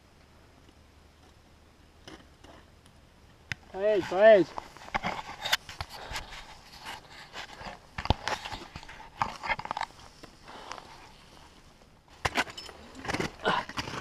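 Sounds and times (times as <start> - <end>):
clothing and gear rustling: 3.8 - 14.0.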